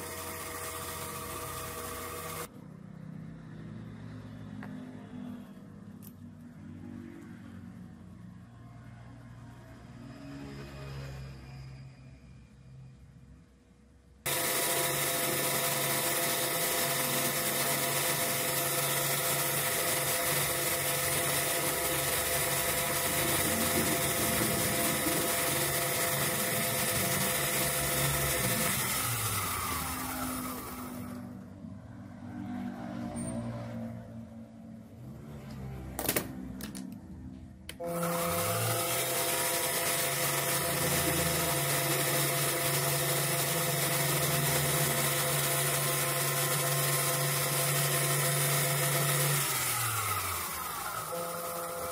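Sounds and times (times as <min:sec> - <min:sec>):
lathe motor whine: 0:00.0 - 0:02.5, 0:14.3 - 0:31.5, 0:37.7 - 0:51.9.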